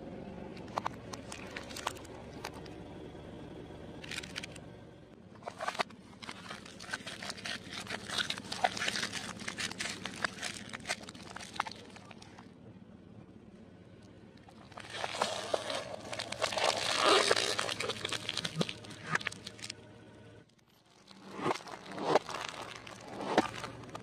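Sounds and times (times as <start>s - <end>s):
hard candies crunching: 0.8s - 2.6s, 5.4s - 12.5s, 14.4s - 19.8s, 20.6s - 24.0s
wrappers crinkling: 5.4s - 12.4s, 14.5s - 19.7s, 20.7s - 24.0s.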